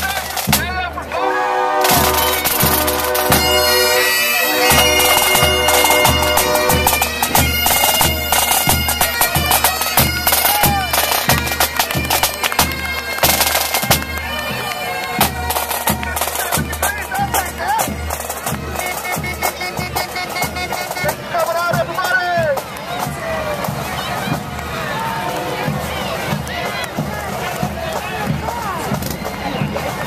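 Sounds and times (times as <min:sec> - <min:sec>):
snare drums rattling: 0:00.0 - 0:01.0, 0:01.8 - 0:24.8, 0:25.6 - 0:30.0
bagpipe drones: 0:01.1 - 0:22.3
bagpipes playing a tune: 0:01.1 - 0:22.4
bass drum beat: 0:01.8 - 0:14.5.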